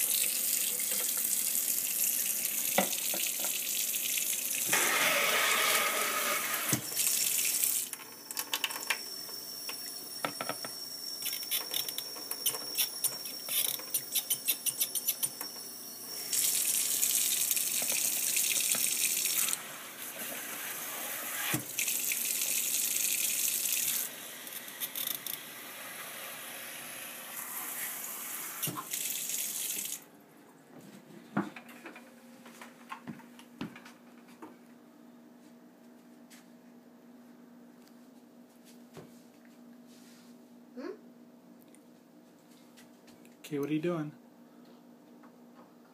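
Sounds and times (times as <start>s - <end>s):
tap water running into bottle: 0.0s - 4.8s, 6.6s - 7.9s, 16.3s - 19.6s, 21.5s - 24.1s, 27.6s - 30.0s.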